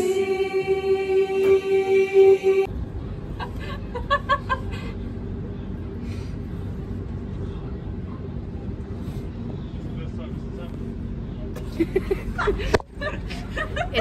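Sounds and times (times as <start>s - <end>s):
vehicle cabin rumble: 1.3s - 14.0s.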